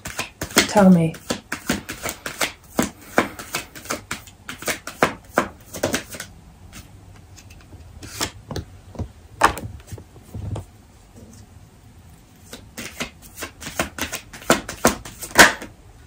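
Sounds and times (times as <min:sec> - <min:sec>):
cards being shuffled: 0:00.0 - 0:08.6, 0:12.4 - 0:15.7.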